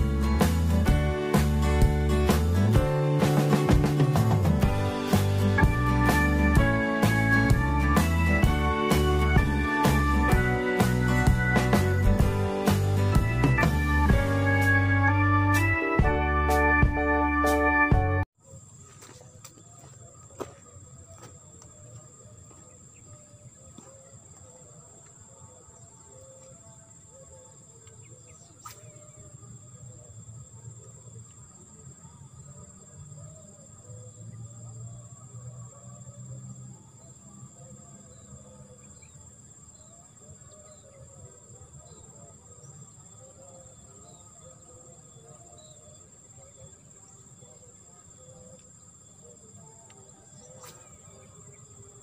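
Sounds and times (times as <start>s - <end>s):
insect drone: 18.4s - 52.0s.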